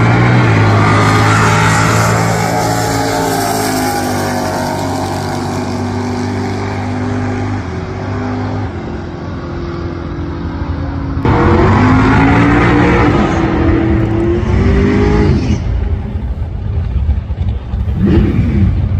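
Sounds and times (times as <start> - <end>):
tires spinning: 0.0 - 8.0
car engine revving: 0.0 - 18.9
drag racing car engines: 0.0 - 18.9.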